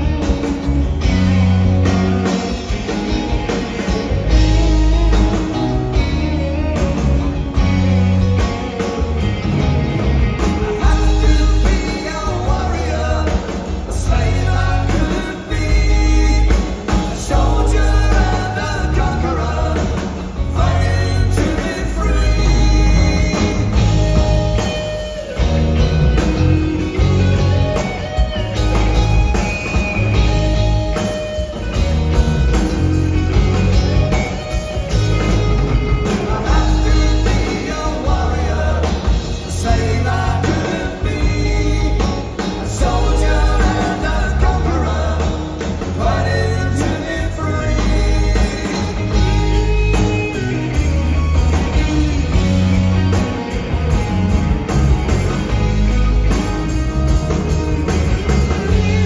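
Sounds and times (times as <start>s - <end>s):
bass guitar: 0.0s - 59.0s
drum kit: 0.0s - 59.0s
electric guitar: 0.0s - 59.0s
man singing: 10.4s - 24.8s, 36.0s - 50.7s, 58.4s - 59.0s.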